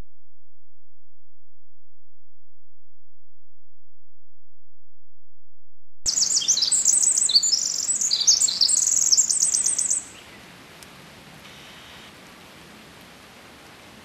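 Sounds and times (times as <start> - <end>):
wren singing trills: 6.1 - 10.4.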